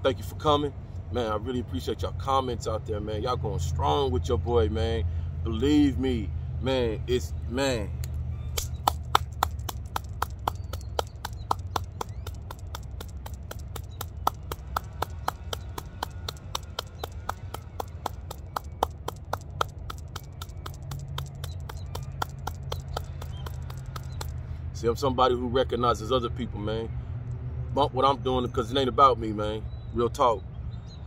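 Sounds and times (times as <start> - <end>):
sharp regular clicking: 8.0 - 24.5.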